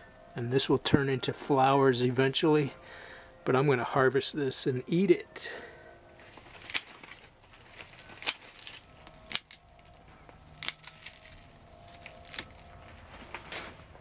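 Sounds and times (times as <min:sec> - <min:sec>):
scissors snipping stalks: 0:06.6 - 0:06.9, 0:08.0 - 0:09.6, 0:10.5 - 0:11.4.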